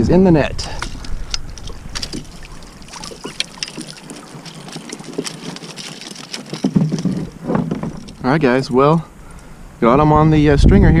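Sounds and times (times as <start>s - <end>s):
water and wind hiss: 0.0s - 11.0s
fishing gear clicking and knocking: 0.7s - 8.6s.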